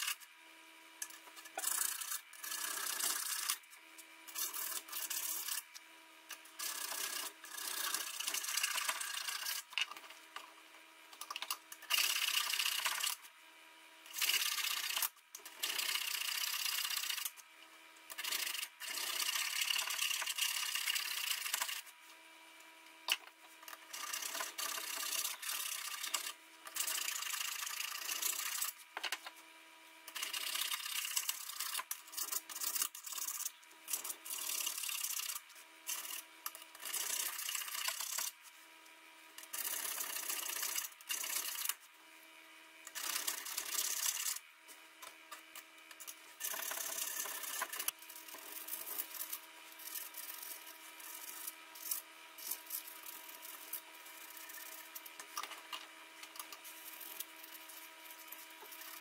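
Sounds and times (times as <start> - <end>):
file scraping steel: 1.0 - 3.6, 4.3 - 5.7.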